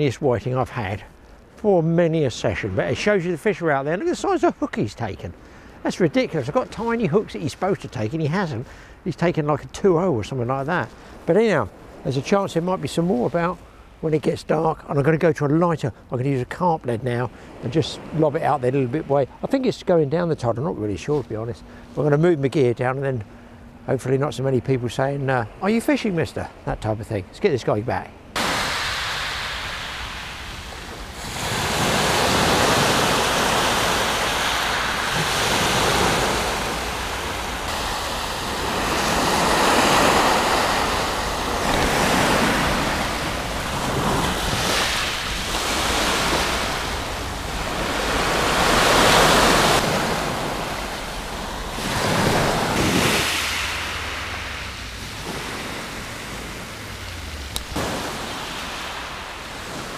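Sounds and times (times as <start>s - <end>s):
wind on microphone: 28.4s - 59.0s
waves breaking on shingle: 28.4s - 59.9s.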